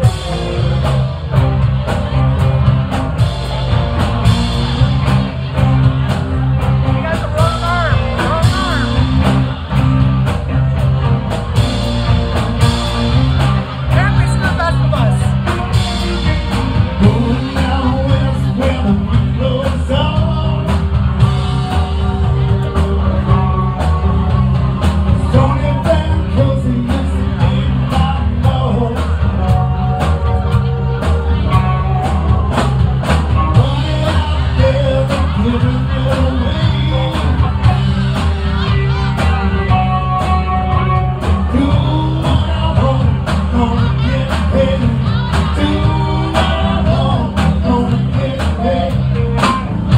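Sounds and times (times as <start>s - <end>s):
heavy repeating bass line: 0.0s - 49.9s
steady drum beat: 0.0s - 49.9s
person singing: 14.0s - 24.4s, 25.2s - 49.9s.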